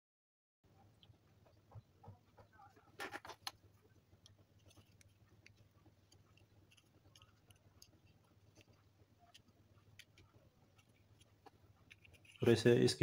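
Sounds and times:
plastic parts clicking and rubbing: 2.6s - 12.9s.

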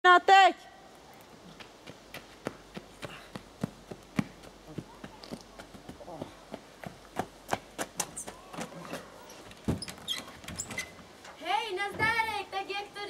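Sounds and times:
running footsteps on dirt path: 1.3s - 9.3s.

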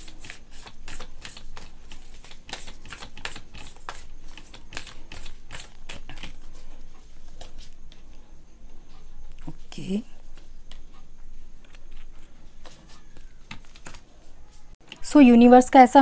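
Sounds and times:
cards being shuffled: 0.0s - 6.6s, 11.6s - 14.7s.

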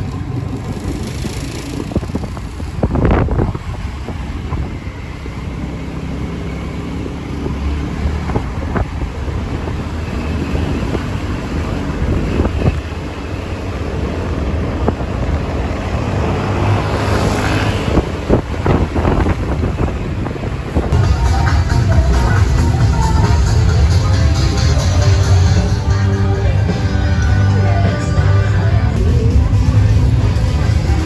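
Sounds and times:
wind buffeting microphone: 0.0s - 21.0s
road vehicle rumble: 0.0s - 31.0s.

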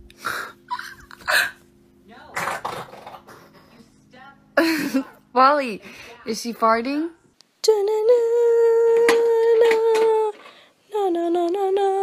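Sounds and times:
person humming: 7.7s - 12.0s.

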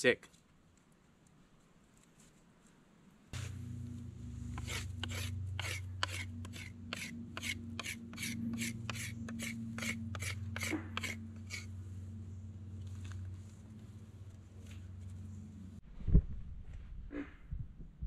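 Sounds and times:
knife whittling wood: 3.4s - 11.7s
steady low hum: 3.4s - 15.8s.

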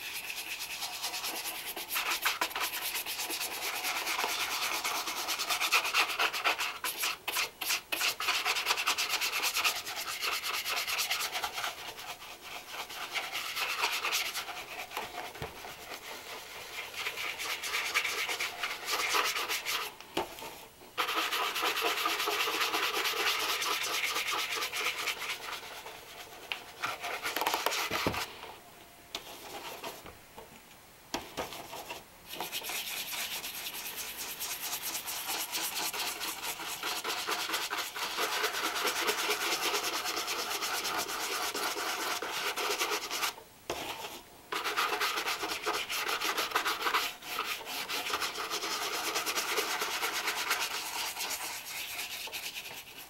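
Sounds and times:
rubbing strokes polishing leather shoe: 0.0s - 28.4s, 31.4s - 53.0s.

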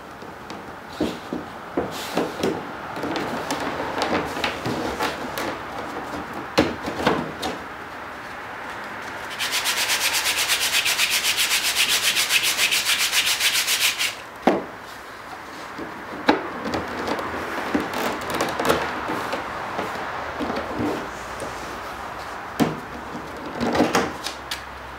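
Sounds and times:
sandpaper block sanding wood: 9.2s - 14.2s.

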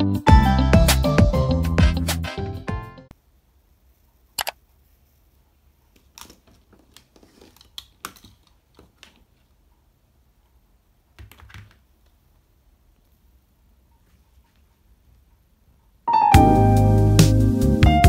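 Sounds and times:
small objects clicking on a desk: 6.0s - 9.4s.

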